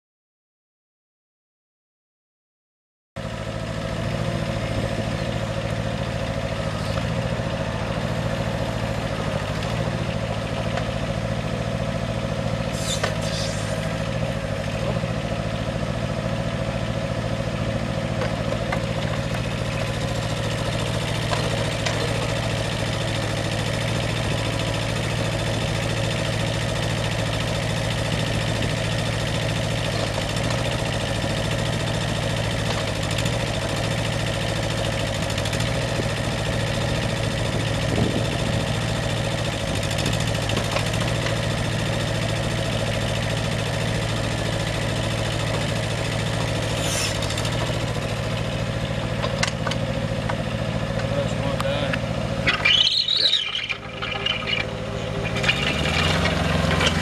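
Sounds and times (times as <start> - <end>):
diesel engine running: 3.2 - 57.0
short hiss: 12.7 - 13.8.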